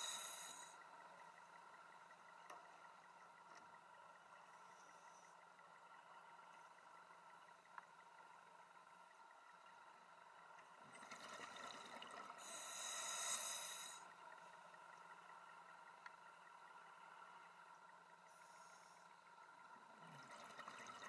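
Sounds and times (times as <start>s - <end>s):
diver breathing through regulator: 12.4s - 14.0s
exhaled bubbles rushing: 20.0s - 21.0s.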